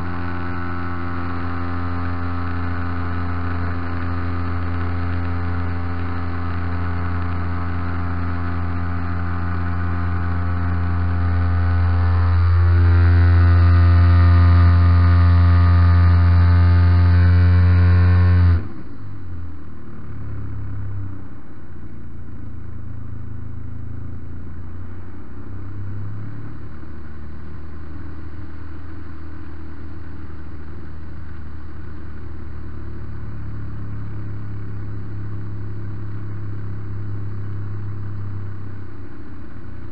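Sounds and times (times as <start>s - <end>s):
model plane engine: 0.0s - 19.1s.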